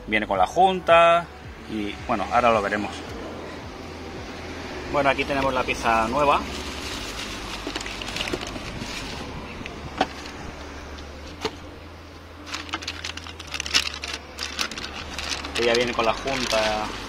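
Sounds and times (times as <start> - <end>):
plastic bag and bubble wrap crinkling: 5.6 - 10.6, 12.4 - 17.0.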